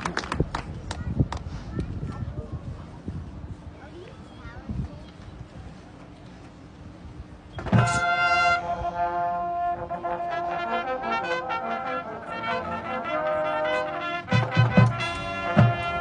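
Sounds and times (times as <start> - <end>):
drums: 7.5 - 8.1, 14.3 - 16.0
marching band brass playing: 7.6 - 16.0.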